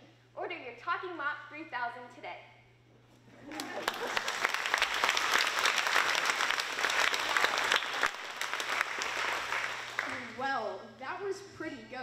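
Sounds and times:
audience applauding: 3.5 - 10.4.

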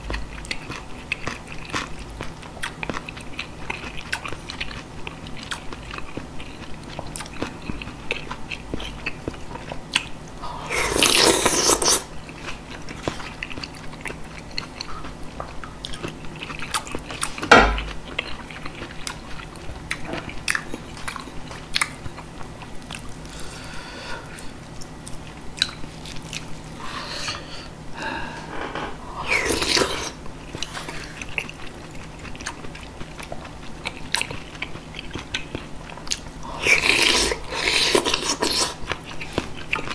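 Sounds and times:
chewing and biting food: 0.0 - 23.5, 24.3 - 27.4, 29.3 - 39.9
sharp knock: 17.5 - 17.9.

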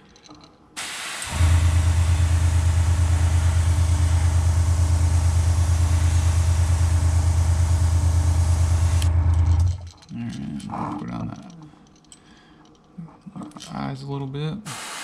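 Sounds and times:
airbrush air hiss: 0.8 - 9.1, 14.7 - 15.0
small motor humming: 1.2 - 9.9.

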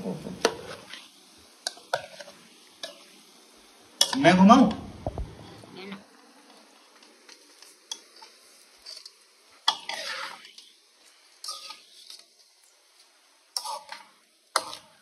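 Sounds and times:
spoon scraping metal pot: 7.9 - 10.6, 11.4 - 12.2.

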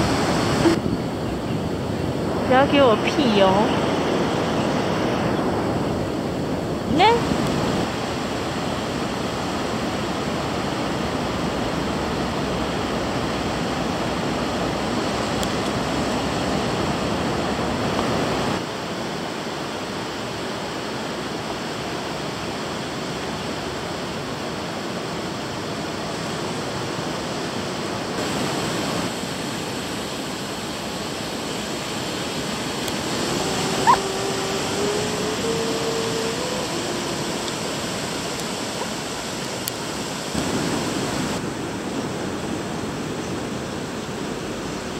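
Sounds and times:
surf breaking on beach: 0.0 - 1.0, 28.0 - 43.0
faint wavering tone: 33.0 - 38.2.

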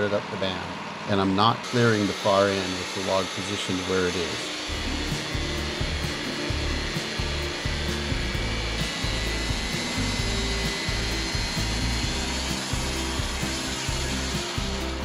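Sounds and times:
bandsaw mill running: 0.0 - 15.0
background music with bass line: 4.7 - 15.0.

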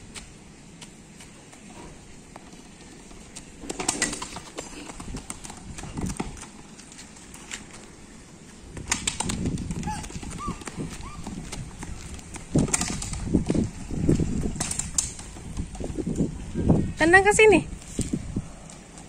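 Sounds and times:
child's footsteps slapping: 0.0 - 16.3
rubber ball bouncing on concrete: 2.3 - 6.7, 8.8 - 16.3.

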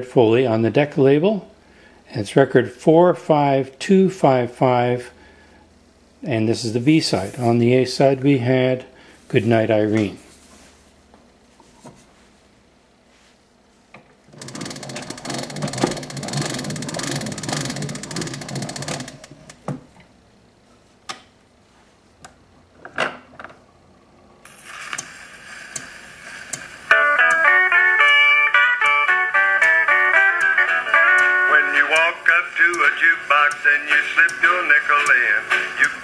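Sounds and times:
record surface hiss: 0.0 - 36.0
gramophone spring motor ratcheting: 14.4 - 19.6
steel-guitar country music: 26.3 - 36.0.

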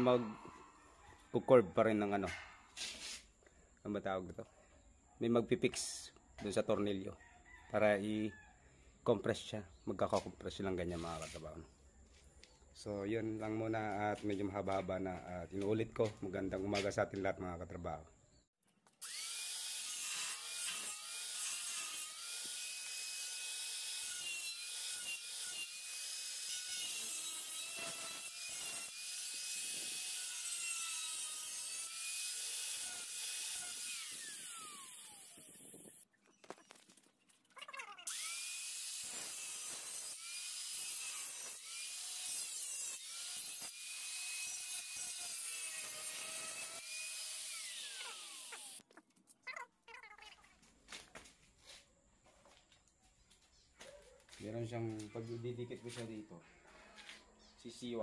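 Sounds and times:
angle grinder cutting steel: 19.0 - 36.0, 38.0 - 48.8.

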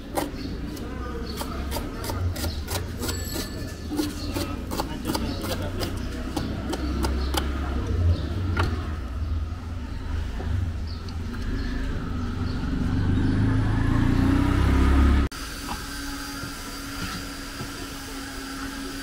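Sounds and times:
knife chopping on wooden board: 3.9 - 7.6.

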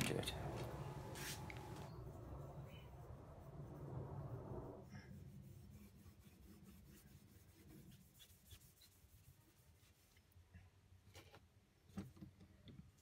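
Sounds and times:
cloth rubbing metal: 0.5 - 1.9, 5.1 - 10.2.

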